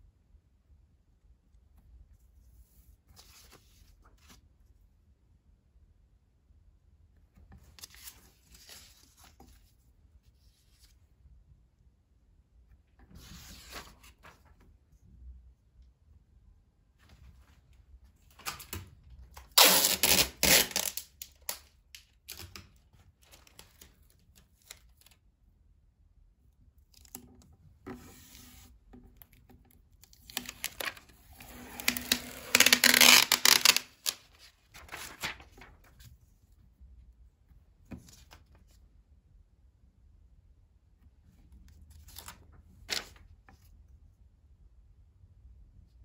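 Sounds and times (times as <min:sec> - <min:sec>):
paper sheets rustling: 0:13.1 - 0:14.6, 0:30.2 - 0:36.3, 0:41.9 - 0:43.6.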